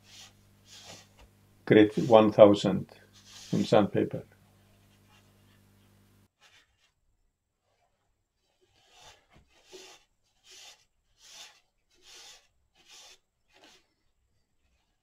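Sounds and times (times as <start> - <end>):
paper towel rubbing on wood: 0.0 - 3.9, 8.4 - 14.0.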